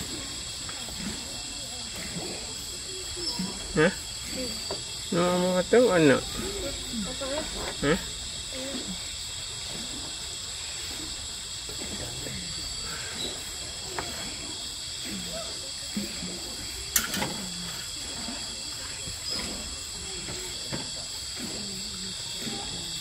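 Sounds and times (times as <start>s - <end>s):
night insects chirring: 0.0s - 23.0s.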